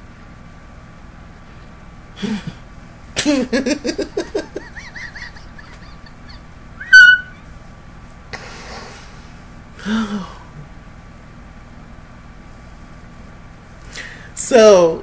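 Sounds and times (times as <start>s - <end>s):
man laughing: 2.2s - 2.6s, 3.2s - 6.7s
breathy exhale: 8.4s - 10.5s, 13.9s - 14.3s.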